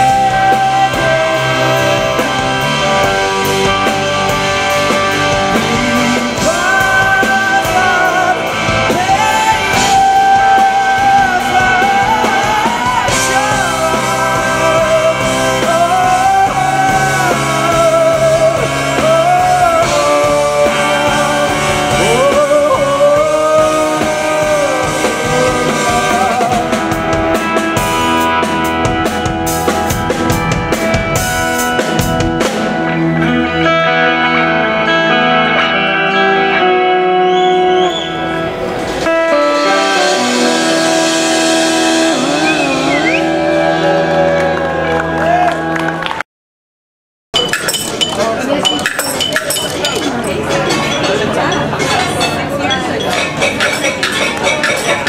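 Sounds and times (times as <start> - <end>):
person singing: 0.0 - 29.0, 39.0 - 45.4
live rock band playing: 0.0 - 46.2, 47.4 - 55.0.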